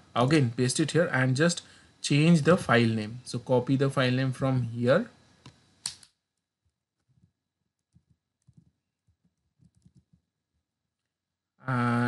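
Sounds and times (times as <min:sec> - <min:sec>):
keyboard and mouse clicks: 0:07.0 - 0:10.2.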